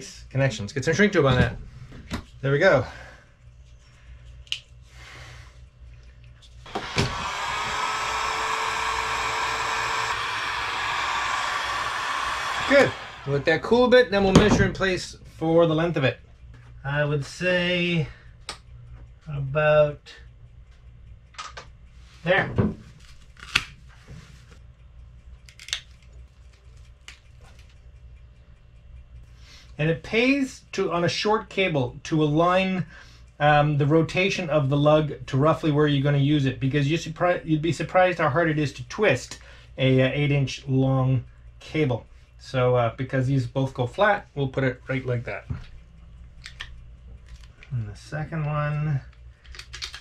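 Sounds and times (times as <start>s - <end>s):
cable cutters snipping: 6.7s - 13.4s
heat gun blowing: 6.7s - 13.8s.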